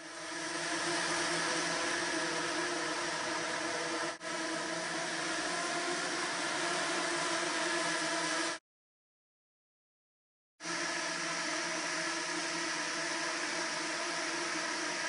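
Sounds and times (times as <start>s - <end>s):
buzzing drone swarm: 0.0s - 8.6s.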